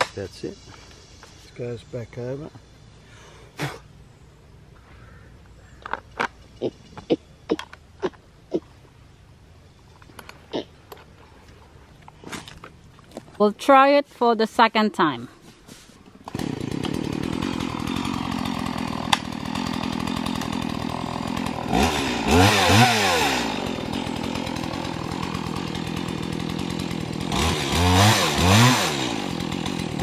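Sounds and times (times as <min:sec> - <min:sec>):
chainsaw cutting tree trunk: 0:16.2 - 0:30.0
chainsaw engine revving: 0:16.2 - 0:30.0.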